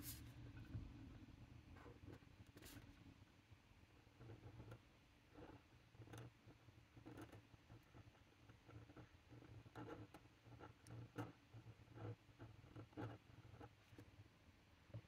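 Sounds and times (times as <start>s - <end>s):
pen nib scratching on card: 4.1s - 13.8s.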